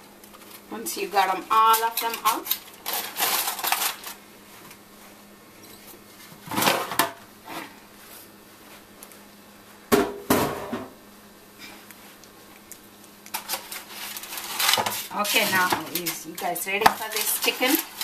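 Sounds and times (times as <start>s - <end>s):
aluminium foil crinkling: 0.2s - 4.2s, 12.6s - 18.0s.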